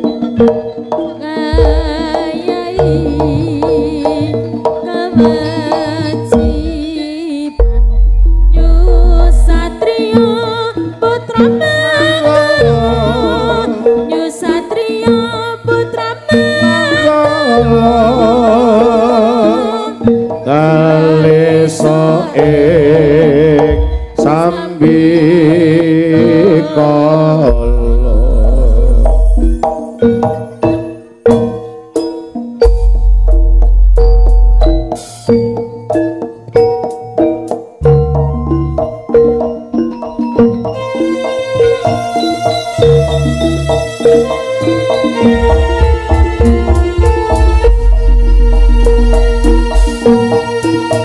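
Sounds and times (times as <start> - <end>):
held gamelan notes: 0.0 - 51.0
wavering melody with vibrato: 0.0 - 51.0
hand drum strokes: 0.4 - 10.5, 27.4 - 30.5, 32.6 - 35.6, 43.3 - 51.0
wavering melody over drone: 6.3 - 11.0, 40.7 - 51.0
deep bass thumps: 7.6 - 9.8, 32.6 - 34.9, 45.3 - 50.0.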